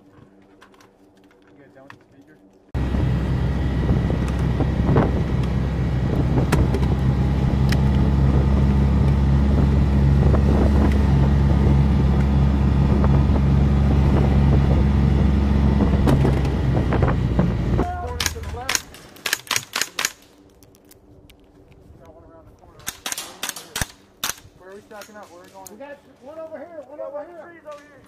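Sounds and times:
utility vehicle engine running: 2.8 - 19.2.

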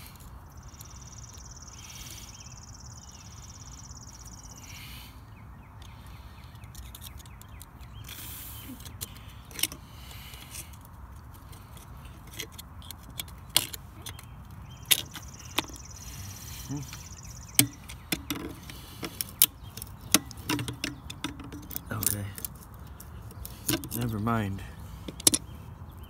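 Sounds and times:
hand tools clicking on metal: 16.8 - 24.1, 25.0 - 25.5.

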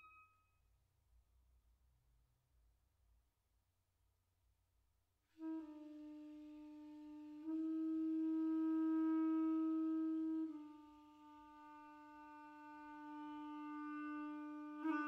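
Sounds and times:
clarinet holding a soft note: 5.4 - 15.0.

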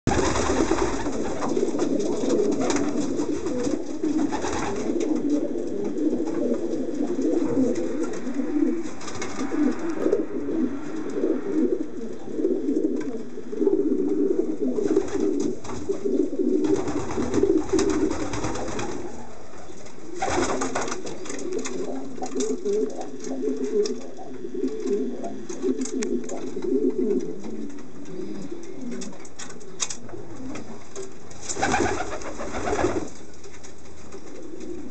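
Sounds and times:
pigeons cooing: 0.1 - 33.4, 34.1 - 34.9
wing rustles: 14.7 - 34.8.

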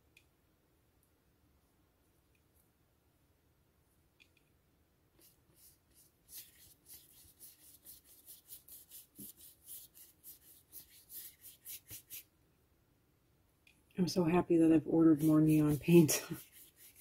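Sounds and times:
paintbrush scrubbing paper: 5.2 - 12.3, 15.0 - 17.0.

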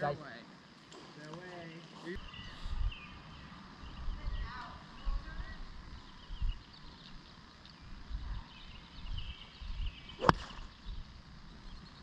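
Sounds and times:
wind on microphone: 2.4 - 3.1, 3.8 - 6.8, 7.8 - 11.8
golf club striking ball: 10.2 - 10.6.

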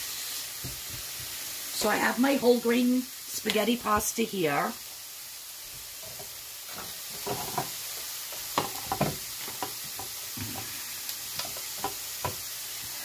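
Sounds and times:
food sizzling in a frying pan: 0.0 - 13.0
kitchenware knocks: 8.6 - 9.2.

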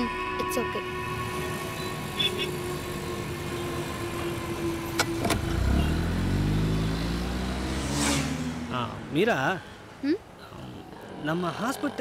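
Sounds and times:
heavy engine: 1.2 - 8.4
vehicle engines running: 1.2 - 12.0.

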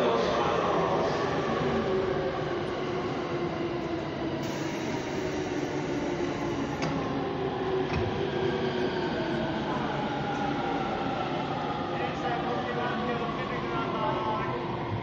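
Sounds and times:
electric train equipment hum: 3.8 - 8.8.

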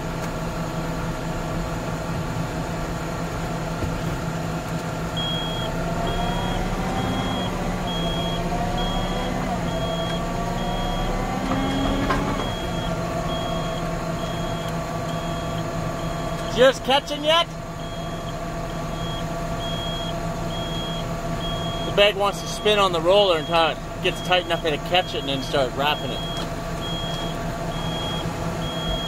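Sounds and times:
tractor engine running: 0.0 - 29.0
reversing alarm beeping: 5.2 - 16.7, 17.8 - 29.0.

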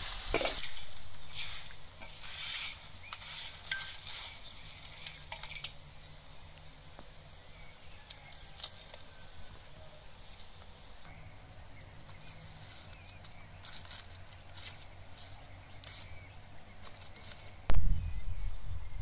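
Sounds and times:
wooden spatula scraping a pan: 0.0 - 5.8
food sizzling in a wok: 0.0 - 6.6.

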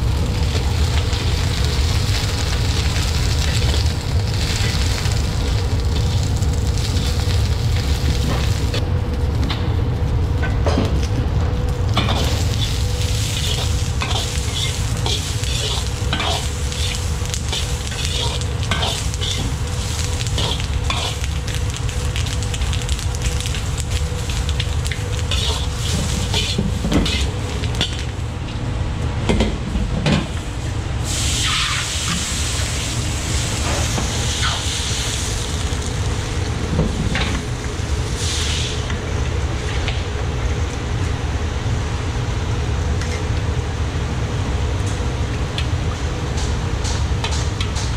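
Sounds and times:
peppers sizzling in hot oil: 0.0 - 8.8, 12.0 - 28.2, 31.0 - 38.9
wok burner rumble: 0.0 - 47.9
metal ladle scraping wok: 12.1 - 21.2, 25.3 - 28.0
loud hiss: 12.3 - 21.4, 31.0 - 36.1, 38.1 - 38.9.

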